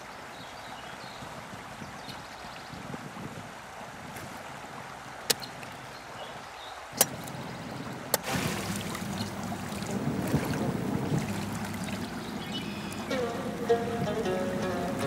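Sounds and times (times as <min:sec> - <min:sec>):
river water lapping: 0:00.0 - 0:15.0
sharp clicks: 0:07.0 - 0:07.5
person splashing water: 0:08.0 - 0:15.0.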